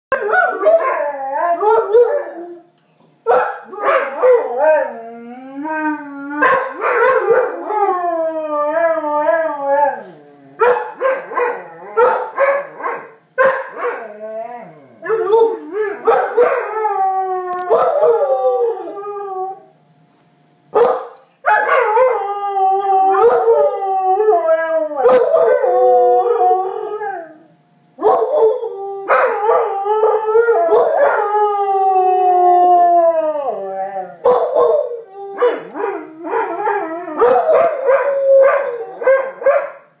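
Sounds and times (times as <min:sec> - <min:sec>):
dog howling: 0:00.1 - 0:02.7, 0:03.6 - 0:13.0, 0:13.7 - 0:19.7, 0:21.5 - 0:39.8.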